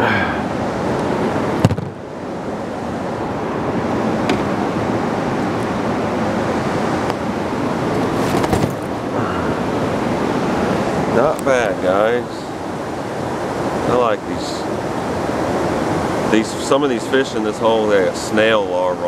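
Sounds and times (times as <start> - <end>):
sharp knock: 1.6 - 2.0.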